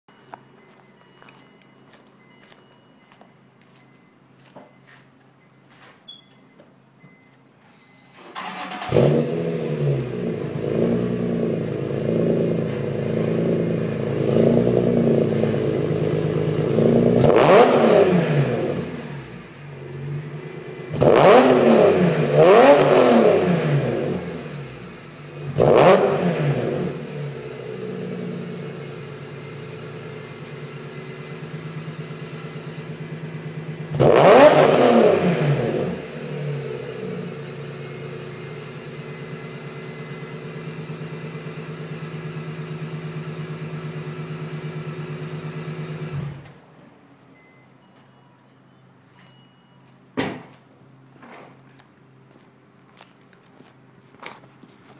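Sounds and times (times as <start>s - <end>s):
car engine idling and revving: 7.0s - 47.6s.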